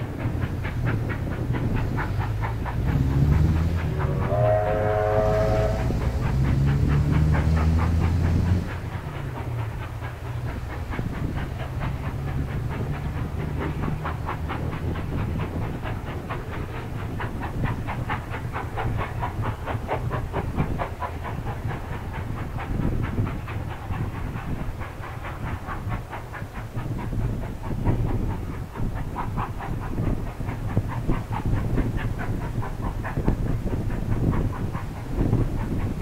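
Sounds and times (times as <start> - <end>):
diesel locomotive engine: 0.0 - 36.0
train wheels clicking over rail joints: 0.0 - 36.0
train horn: 3.9 - 6.4.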